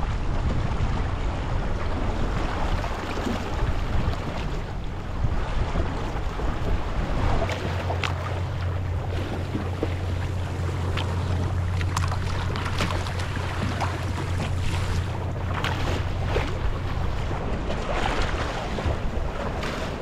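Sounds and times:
water rushing along boat hull: 0:00.0 - 0:20.0
wind rumble on microphone: 0:00.0 - 0:20.0
sharp water splashes: 0:07.3 - 0:20.0.

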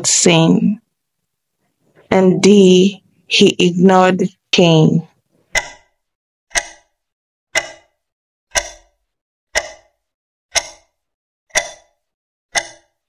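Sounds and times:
clock ticking: 0:05.5 - 0:13.0.

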